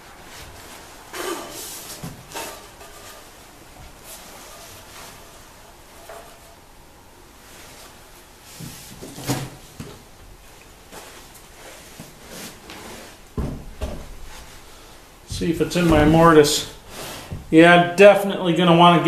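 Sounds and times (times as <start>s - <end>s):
heavy thump: 13.4s - 14.4s, 15.3s - 16.4s.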